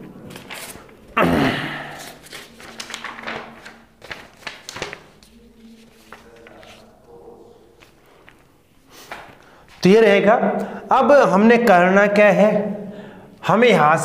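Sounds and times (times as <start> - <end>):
paper and pen handling: 0.0 - 1.2, 1.9 - 9.6.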